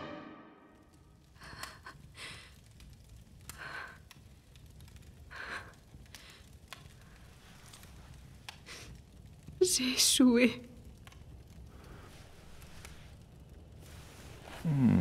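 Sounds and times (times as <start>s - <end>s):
small clicks: 0.9s - 9.6s.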